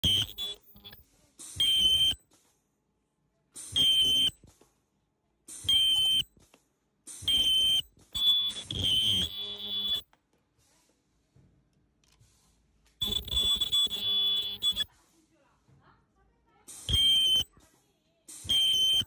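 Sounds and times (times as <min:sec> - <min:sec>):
high-pitched welding screeches: 0:00.0 - 0:02.2, 0:03.6 - 0:04.4, 0:05.5 - 0:06.3, 0:07.1 - 0:10.0, 0:13.0 - 0:14.9, 0:16.7 - 0:17.5, 0:18.3 - 0:19.0.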